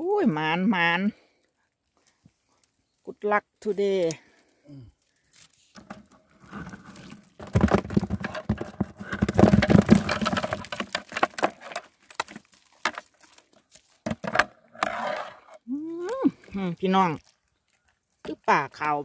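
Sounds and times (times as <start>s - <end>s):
fish flopping into a bucket: 5.7s - 16.6s.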